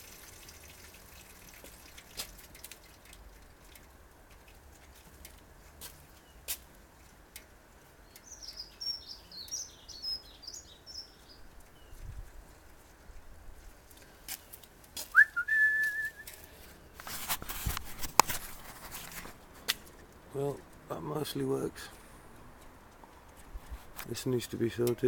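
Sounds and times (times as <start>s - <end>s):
birds chirping: 7.9s - 12.2s
rising whistled note: 15.1s - 16.3s
clicks and rustling: 15.8s - 20.9s.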